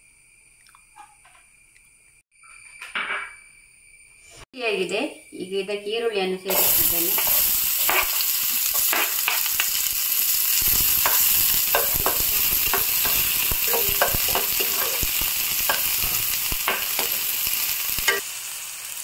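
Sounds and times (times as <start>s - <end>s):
onions sizzling in a pan: 4.6s - 19.0s
spatula scraping a pan: 10.6s - 18.2s.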